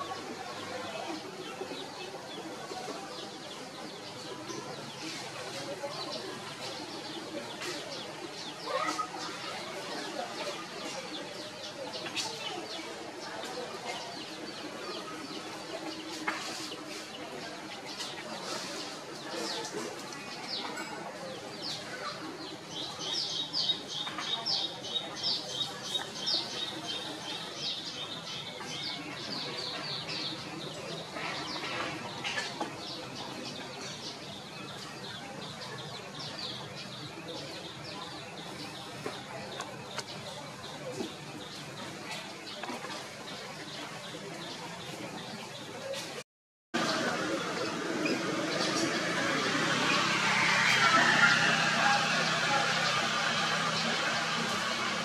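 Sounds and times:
birds chirping: 46.8 - 55.0.

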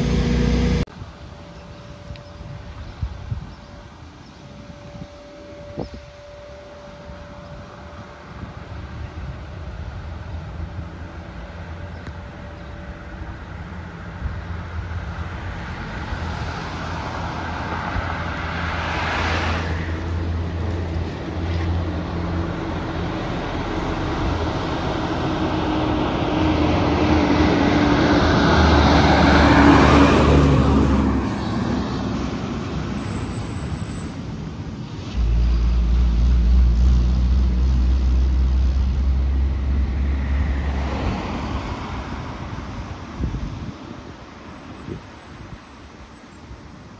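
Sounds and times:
wind rumble on microphone: 0.0 - 18.8, 35.1 - 45.7
fire engine driving past: 0.0 - 46.9.

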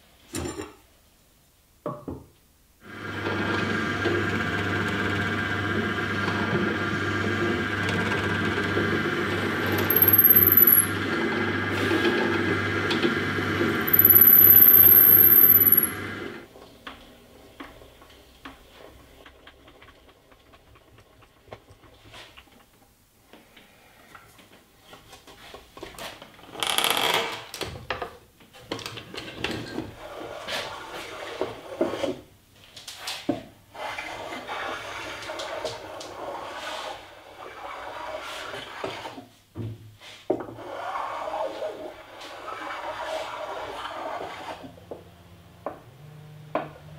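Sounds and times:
hand drill boring into wood: 7.8 - 11.2, 13.6 - 16.4
high squeals: 13.8 - 16.0.

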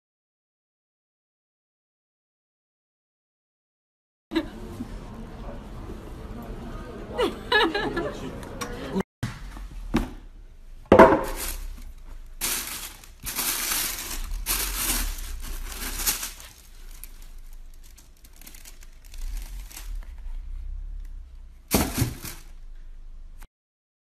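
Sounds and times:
tissue paper rustling: 11.3 - 20.6, 21.7 - 22.6.

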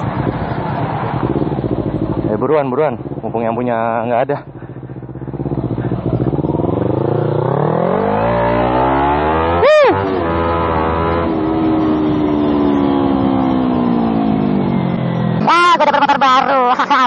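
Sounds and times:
motorcycle engine accelerating: 0.0 - 17.0
rising and falling tone: 6.2 - 15.5.

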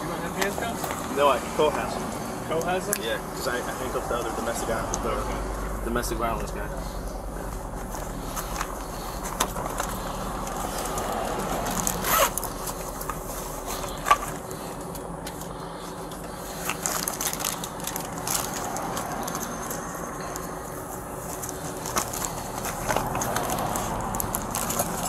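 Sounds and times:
low hum: 4.6 - 25.0
rustling and scraping handling noises: 6.8 - 25.0.

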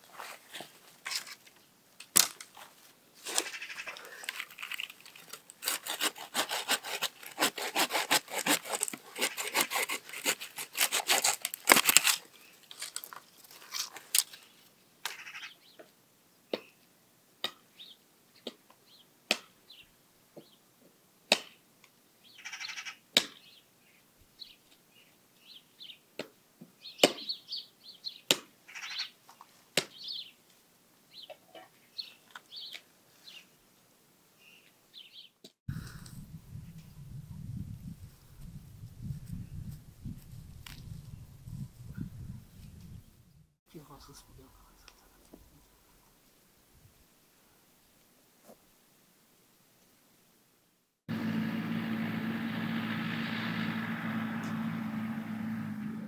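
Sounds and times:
hand saw cutting branch: 5.2 - 13.0.

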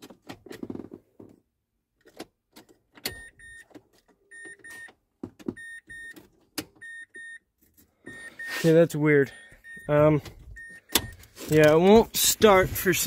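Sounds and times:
dashboard warning beeps: 3.1 - 3.7, 4.3 - 6.2, 6.8 - 13.0.

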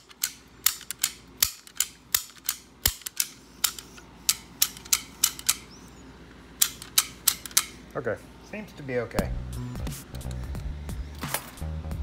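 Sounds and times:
lock slide metallic clicks: 0.0 - 5.7, 6.6 - 7.8.

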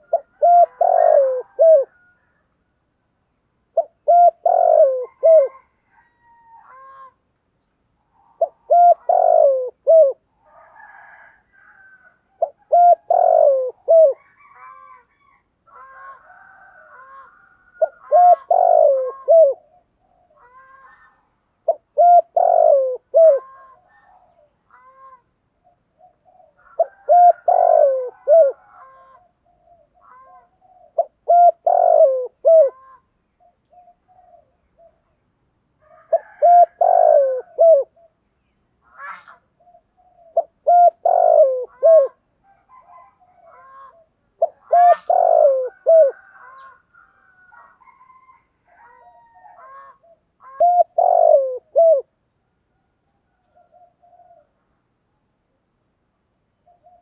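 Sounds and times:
dove cooing: 0.0 - 2.4, 3.7 - 7.2, 8.1 - 35.2, 35.8 - 38.2, 38.9 - 52.2, 53.4 - 54.6, 56.6 - 57.0
higher bird calls: 49.6 - 52.1.

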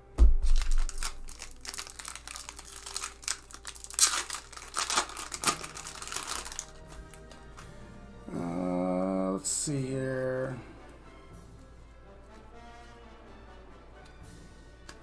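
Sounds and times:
low thump: 0.2 - 0.6
foil wrapper crinkling and tearing: 0.4 - 7.7.

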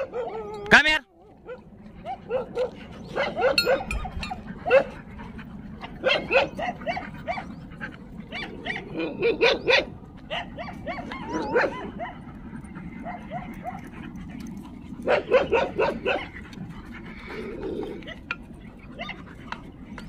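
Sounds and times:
dog whining: 0.0 - 5.0, 5.9 - 12.2, 17.1 - 19.3
dogs barking: 0.0 - 20.0.

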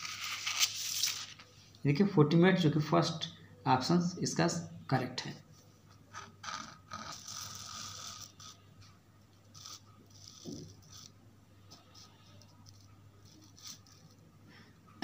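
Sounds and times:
paper rustling and scraping: 0.0 - 1.6.

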